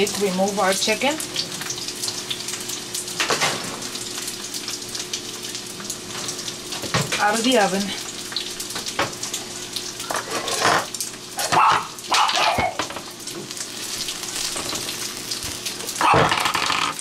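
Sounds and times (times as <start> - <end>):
dog barking: 11.4 - 12.8, 16.0 - 16.3.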